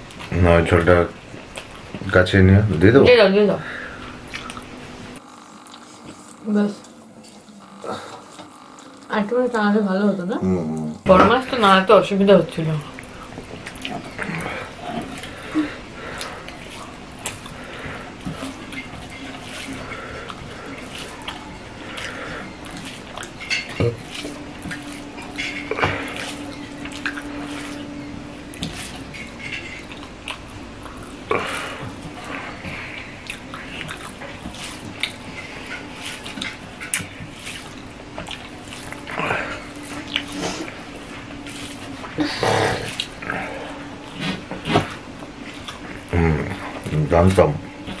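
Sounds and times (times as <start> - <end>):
low steady hum: 0.0 - 48.0
wet chewing and lip smacks: 4.3 - 4.7, 12.8 - 15.4, 18.2 - 27.9, 29.8 - 31.2, 31.8 - 42.2, 42.9 - 43.3, 44.0 - 46.9.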